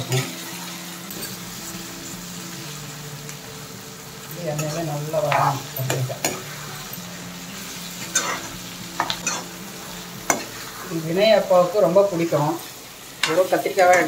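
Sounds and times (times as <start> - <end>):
oil sizzling: 0.0 - 14.0
metal spatula scraping pan: 8.0 - 9.5.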